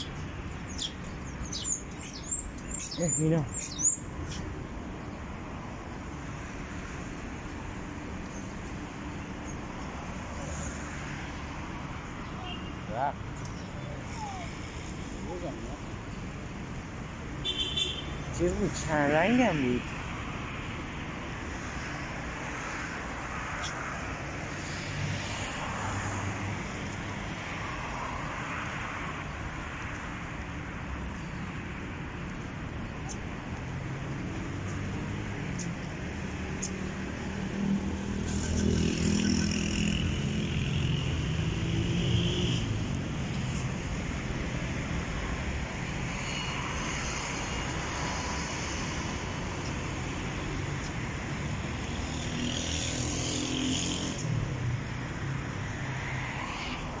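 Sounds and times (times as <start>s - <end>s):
road traffic noise: 0.0s - 57.0s
car passing by: 21.6s - 30.1s, 36.3s - 44.2s, 45.8s - 54.4s, 55.2s - 57.0s.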